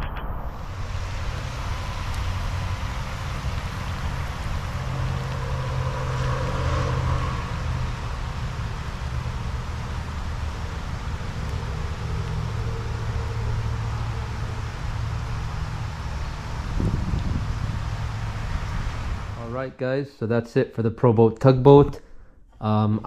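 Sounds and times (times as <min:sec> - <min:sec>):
constant low rumble: 0:00.0 - 0:23.0
rain falling on water: 0:00.9 - 0:16.7.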